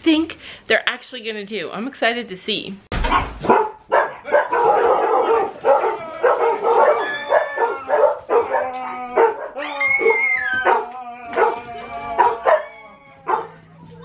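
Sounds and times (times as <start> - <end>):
dogs barking and yipping: 3.1 - 14.0
high-pitched falling cry: 8.8 - 13.3.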